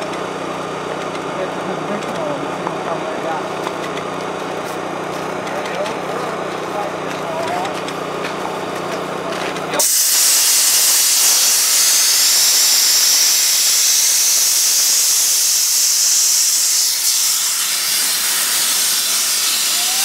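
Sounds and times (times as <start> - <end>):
loud high-pitched hiss: 9.8 - 20.0.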